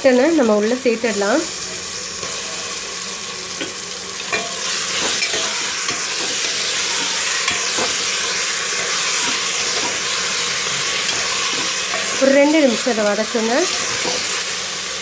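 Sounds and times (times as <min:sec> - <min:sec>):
meat sizzling in hot oil: 0:00.0 - 0:15.0
metal spatula scraping pot: 0:03.6 - 0:12.9.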